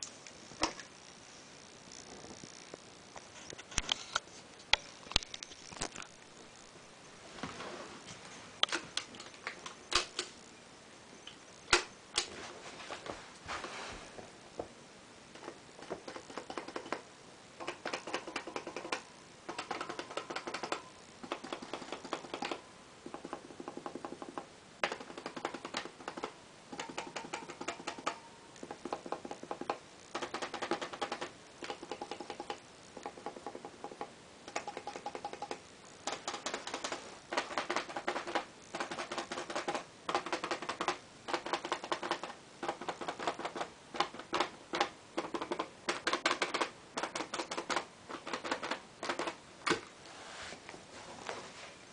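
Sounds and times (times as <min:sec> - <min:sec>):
rapid mechanical clicking and rattling: 0:15.3 - 0:49.4.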